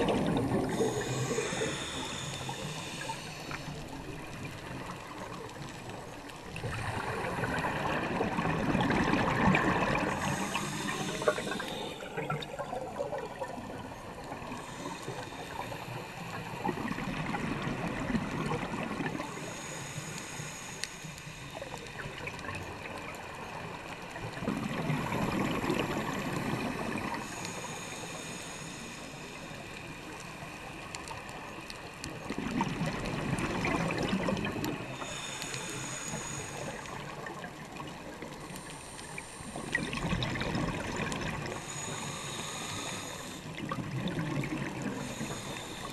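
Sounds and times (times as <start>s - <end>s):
gurgling exhaust bubbles: 0.0s - 1.6s
steady underwater hiss: 0.0s - 45.9s.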